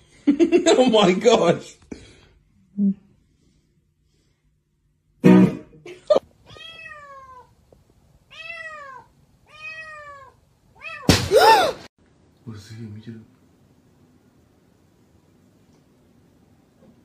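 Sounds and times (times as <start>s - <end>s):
kitten meowing: 6.5s - 7.5s, 8.3s - 11.1s.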